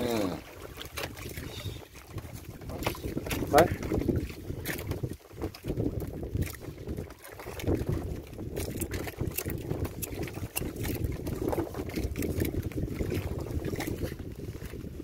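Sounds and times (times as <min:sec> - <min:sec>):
water lapping at boat: 0:00.0 - 0:15.0
wind buffeting microphone: 0:00.0 - 0:15.0
fishing line clicks and rustles: 0:06.3 - 0:12.7.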